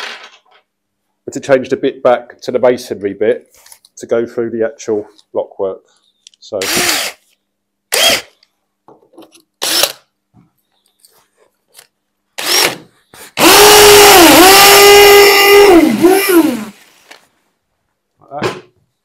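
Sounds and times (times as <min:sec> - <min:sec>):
drill drilling into tiled wall: 0:06.6 - 0:07.2, 0:07.9 - 0:08.4, 0:09.6 - 0:10.0, 0:12.4 - 0:16.7
drill trigger blips: 0:06.6 - 0:07.2.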